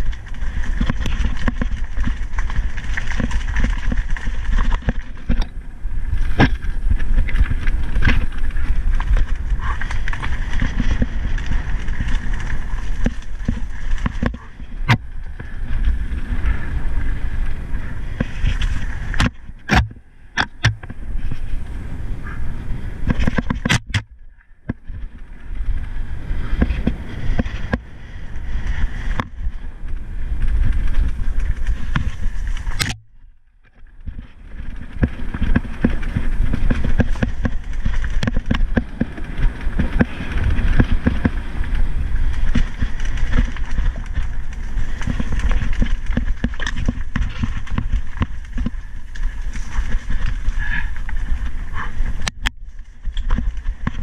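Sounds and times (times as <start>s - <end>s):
tyres rolling over loose stones: 0.0s - 21.6s, 33.8s - 54.0s
bike chain and frame rattling: 0.0s - 23.8s, 24.7s - 32.8s, 33.8s - 54.0s
wind buffeting microphone: 0.0s - 33.0s, 33.8s - 54.0s.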